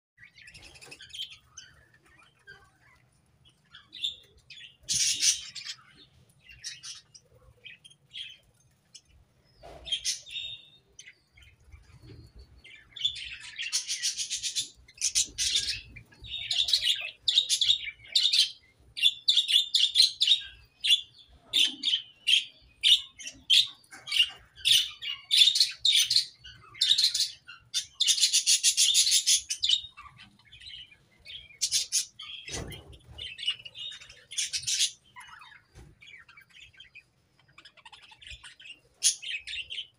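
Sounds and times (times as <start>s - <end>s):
budgerigars chirping: 3.7s - 8.5s, 9.6s - 39.9s.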